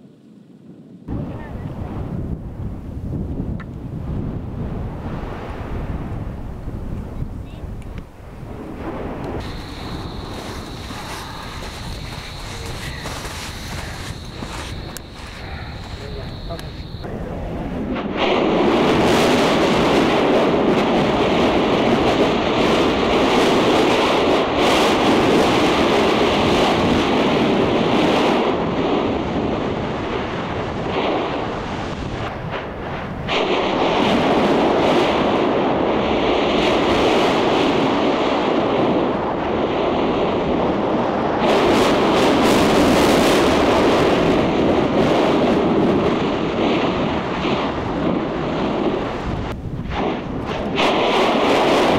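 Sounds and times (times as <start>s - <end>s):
volcano roaring: 8.2s - 51.9s.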